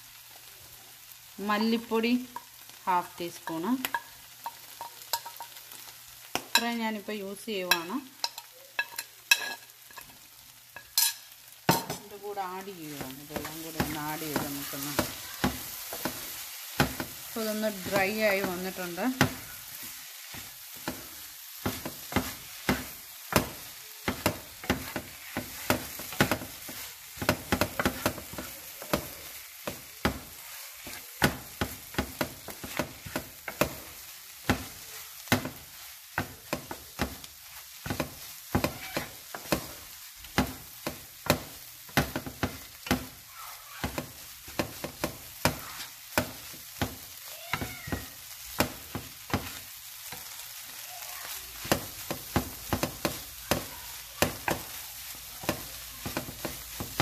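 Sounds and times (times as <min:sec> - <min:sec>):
clam meat sizzling in frying pan: 0:00.0 - 0:57.0
wooden spatula scraping a pan: 0:12.8 - 0:43.2, 0:43.8 - 0:57.0.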